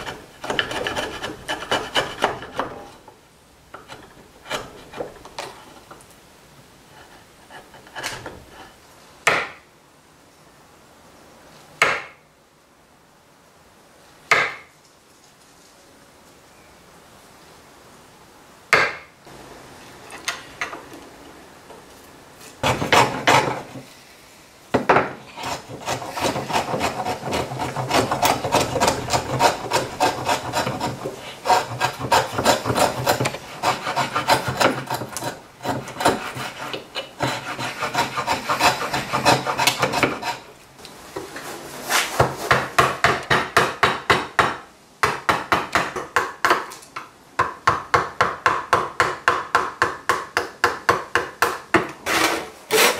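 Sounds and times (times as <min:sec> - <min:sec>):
chisel paring strokes: 0:00.0 - 0:03.0, 0:03.8 - 0:05.9, 0:07.0 - 0:09.5, 0:22.6 - 0:23.9, 0:25.0 - 0:40.5
router plane scraping wood: 0:00.0 - 0:03.0, 0:03.8 - 0:05.9, 0:22.6 - 0:24.0, 0:25.2 - 0:40.5, 0:52.0 - 0:52.9.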